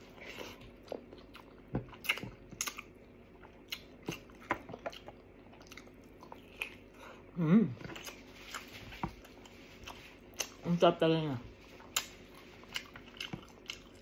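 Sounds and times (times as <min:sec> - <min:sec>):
person chewing meat: 0:00.0 - 0:10.7, 0:11.6 - 0:14.0
person humming mm: 0:07.4 - 0:07.8.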